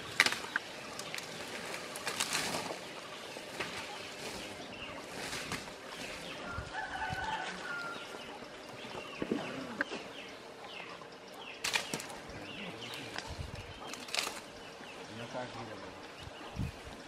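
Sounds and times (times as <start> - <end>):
palm fronds rustling and snapping: 0.0 - 10.2, 11.6 - 15.8
birdsong: 0.0 - 17.0
drawn-out bird call: 0.0 - 17.0.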